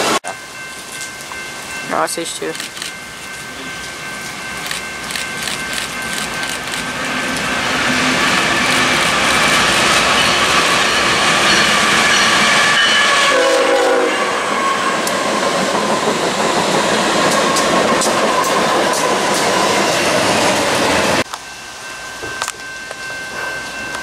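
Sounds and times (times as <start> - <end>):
train wheels clicking on rails: 2.4 - 13.6, 14.4 - 21.5
train horn: 7.0 - 15.2.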